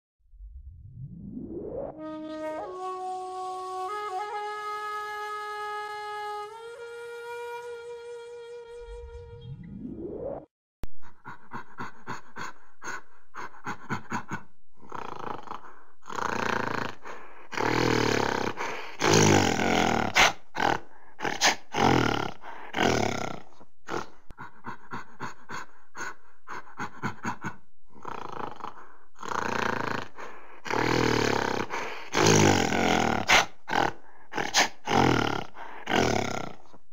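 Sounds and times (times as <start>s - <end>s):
gorilla grunts and growls: 11.0s - 36.8s.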